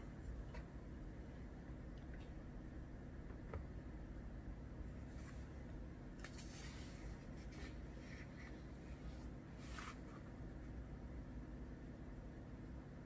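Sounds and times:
faint low hum: 0:00.0 - 0:13.0
soft scratchy rustles: 0:05.0 - 0:10.3.

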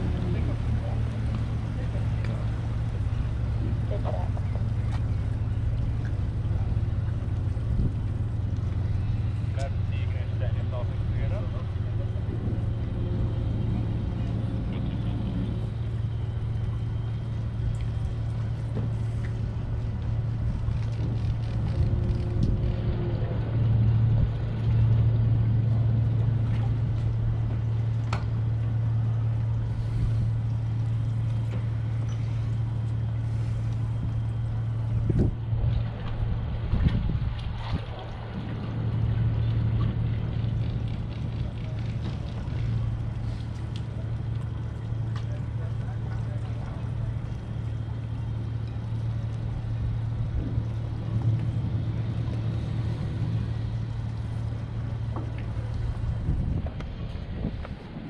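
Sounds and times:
boat engine humming: 0:00.0 - 0:58.0.

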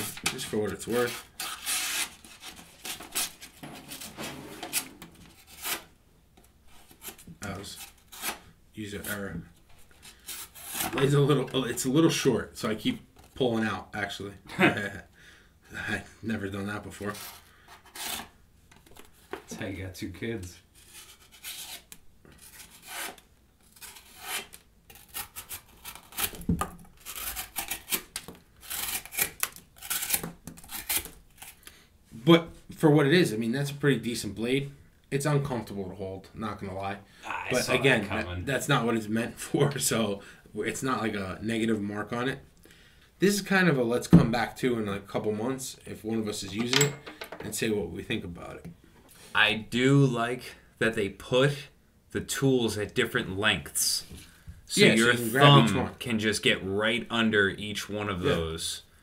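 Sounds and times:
knife cutting paper: 0:20.9 - 0:31.6.

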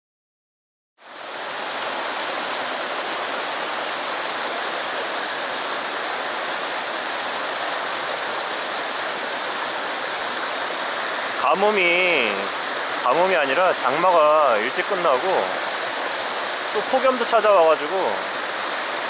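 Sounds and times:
stream rushing over stones: 0:01.0 - 0:19.0.

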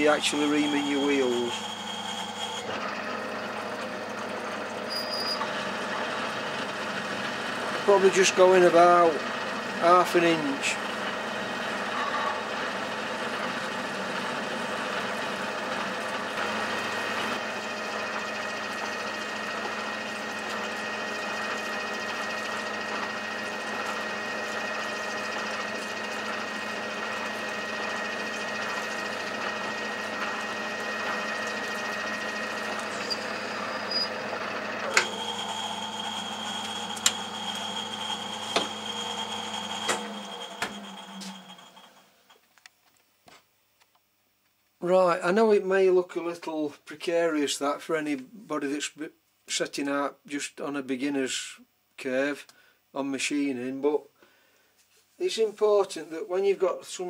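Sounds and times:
metal lathe whirring: 0:00.0 - 0:42.2
lathe running down: 0:00.0 - 0:42.3.

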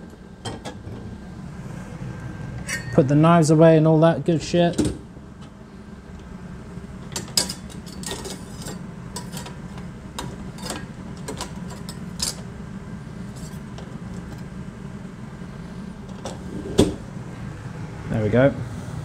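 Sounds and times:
steady low hum: 0:00.0 - 0:19.0
utensils clinking and knocking: 0:07.1 - 0:09.6, 0:10.2 - 0:12.4.

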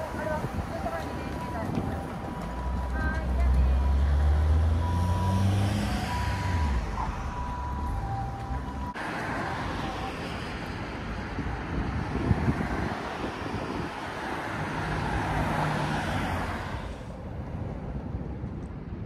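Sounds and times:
vehicles passing: 0:00.0 - 0:19.0.

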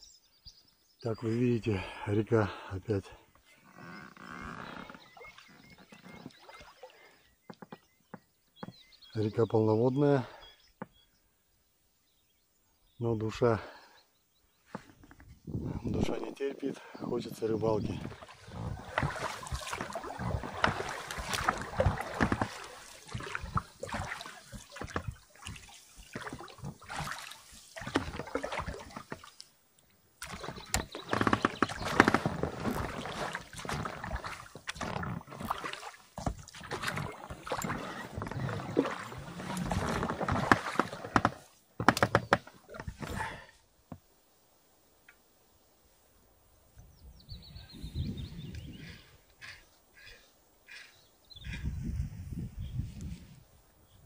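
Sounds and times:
oars sloshing in water: 0:03.0 - 0:09.2, 0:16.0 - 0:43.6.

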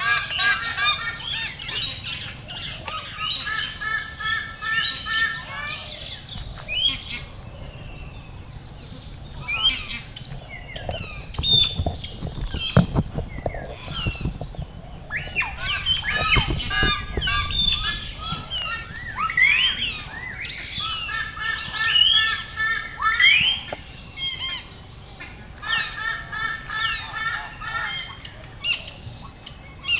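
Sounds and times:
birds chirping and honking: 0:00.0 - 0:29.9
low thumps: 0:10.3 - 0:19.0.

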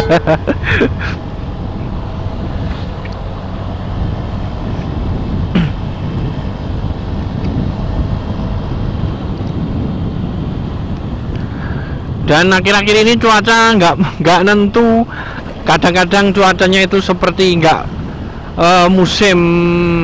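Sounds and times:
motorcycle engine running: 0:00.0 - 0:12.1
wind rushing over microphone: 0:00.0 - 0:20.0.

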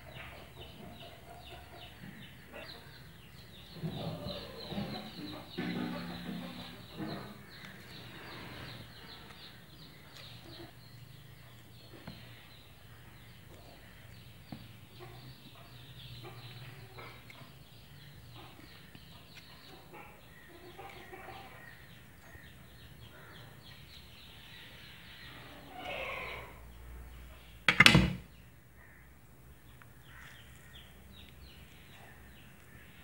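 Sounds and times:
chickens clucking: 0:00.0 - 0:26.6
birds calling: 0:00.0 - 0:33.0
sharp loud knock: 0:27.7 - 0:28.3.

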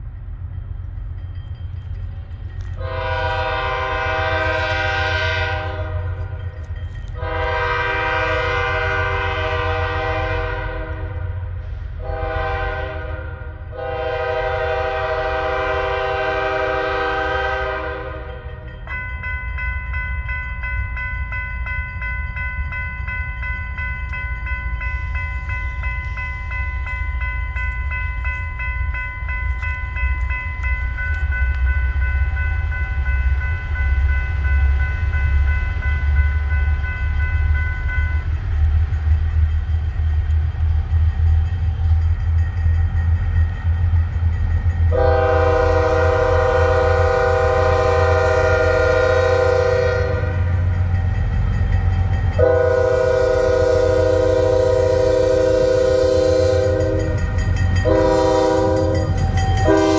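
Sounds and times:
locomotive bell ringing: 0:00.0 - 0:11.0, 0:12.0 - 0:59.9
locomotive air horn blasts: 0:02.8 - 0:06.4, 0:07.1 - 0:18.4, 0:44.9 - 0:50.7, 0:52.4 - 0:59.9.

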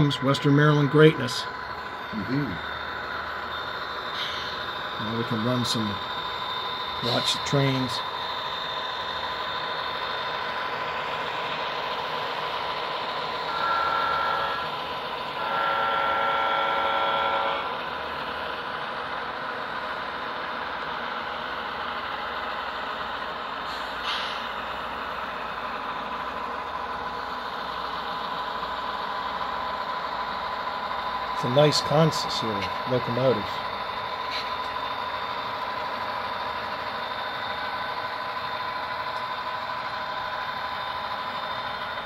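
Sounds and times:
model diesel engine running: 0:00.0 - 0:42.0
train horn blasts: 0:13.5 - 0:14.7, 0:15.4 - 0:17.7.

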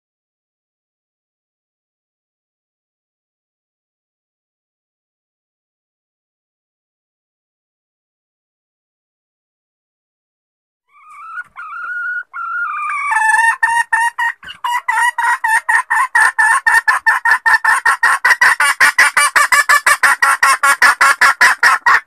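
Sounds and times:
hen calling and clucking: 0:10.9 - 0:22.0.

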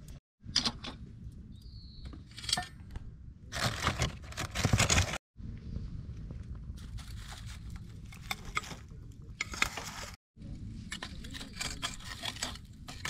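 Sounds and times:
low steady rumble: 0:05.4 - 0:09.5, 0:10.4 - 0:13.0
charcoal clinking and scraping: 0:10.9 - 0:13.0.

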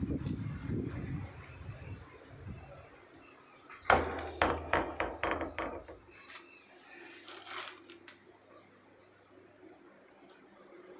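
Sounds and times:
sharp knocks: 0:03.9 - 0:06.0.

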